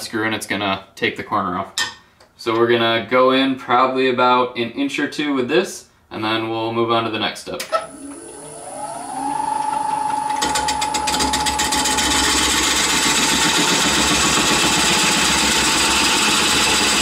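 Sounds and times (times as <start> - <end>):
wood lathe motor whine: 7.8 - 17.0.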